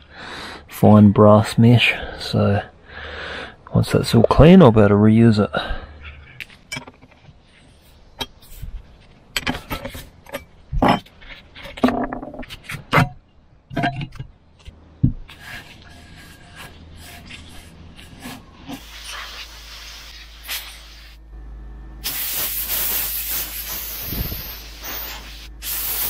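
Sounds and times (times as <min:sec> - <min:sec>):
rag wiping metal canister: 0:15.3 - 0:20.9.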